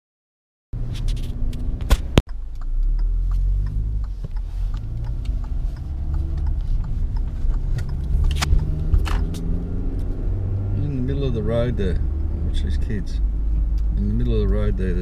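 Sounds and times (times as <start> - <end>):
car engine accelerating: 0.8 - 15.0
road rumble: 0.8 - 15.0
sharp clicks: 1.5 - 10.1.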